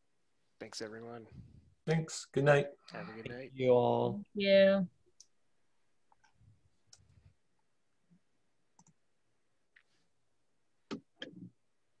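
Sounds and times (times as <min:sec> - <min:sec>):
faint clicks: 0:08.8 - 0:09.0.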